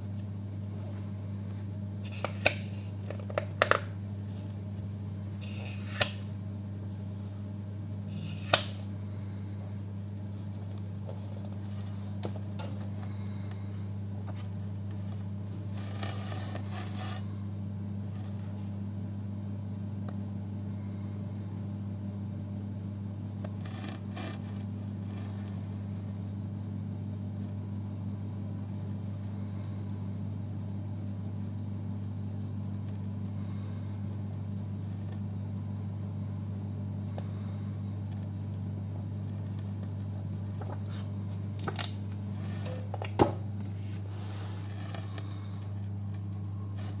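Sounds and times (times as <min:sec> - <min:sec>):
steady low hum: 0:00.0 - 0:47.0
paper pages rustling: 0:40.4 - 0:42.8.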